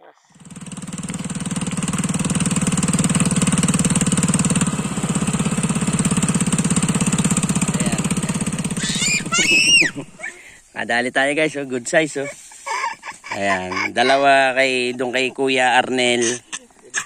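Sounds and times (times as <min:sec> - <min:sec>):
small boat engine putter: 0:00.4 - 0:10.3.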